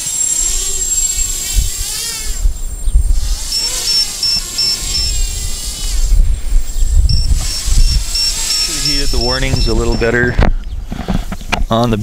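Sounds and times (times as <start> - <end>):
drone motors whining: 0.0 - 11.4
wind rumble on microphone: 0.0 - 12.0
alarm beeps: 3.6 - 5.2, 7.1 - 10.1.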